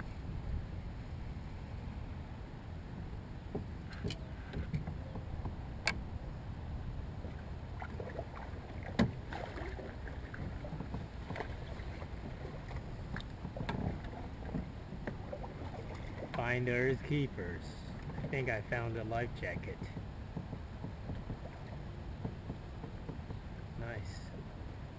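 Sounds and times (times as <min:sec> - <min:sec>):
steady low rumble: 0:00.0 - 0:24.9
paddle swishing water: 0:07.1 - 0:24.9
short knocks and clicks: 0:19.4 - 0:23.4.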